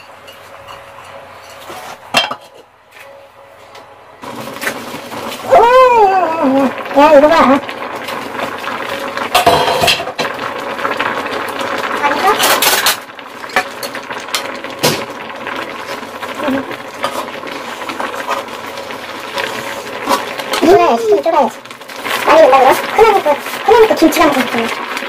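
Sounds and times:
sauce bubbling: 4.2s - 25.0s.

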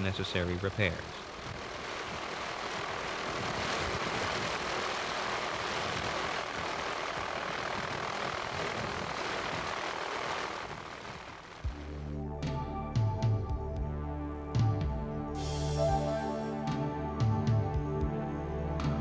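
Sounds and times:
helicopter rotor and engine: 0.0s - 11.6s.

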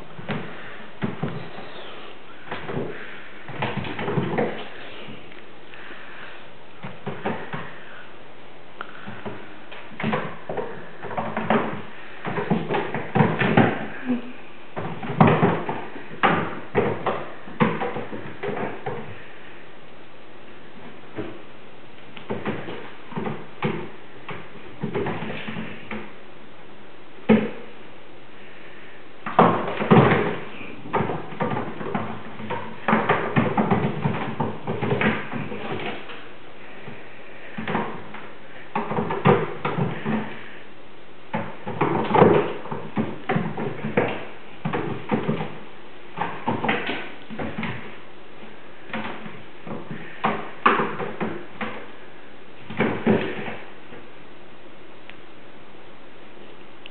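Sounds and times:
kittens thumping on roof: 0.2s - 5.2s, 6.8s - 7.8s, 9.0s - 19.3s, 22.2s - 26.2s, 29.2s - 40.6s, 41.3s - 51.9s, 52.6s - 53.7s.

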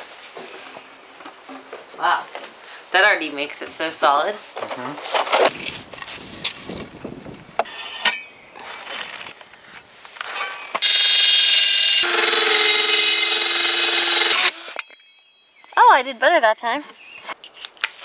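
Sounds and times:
cordless drill driving screw: 10.8s - 14.8s.

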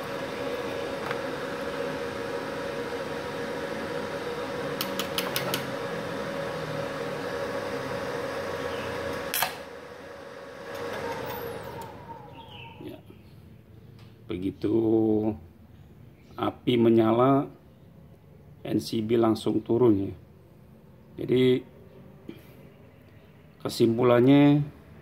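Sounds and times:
fan winding down: 0.0s - 13.0s
welder humming with fan noise: 0.0s - 17.6s, 18.6s - 25.0s.

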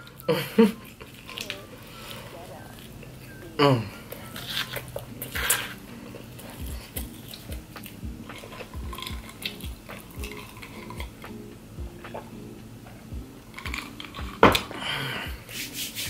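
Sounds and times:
chewing pizza: 0.1s - 12.4s
drinking water from a glass: 5.2s - 11.3s.

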